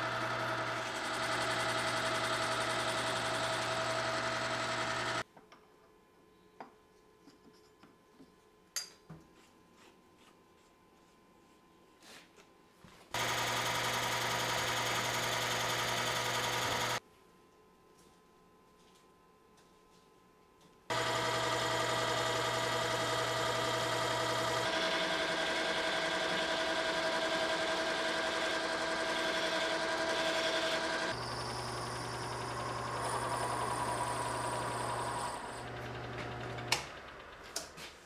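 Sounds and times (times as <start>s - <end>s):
lathe motor and gear whine: 0.0s - 5.2s, 13.2s - 17.0s, 20.9s - 37.6s
lathe stopping click: 33.0s - 37.8s.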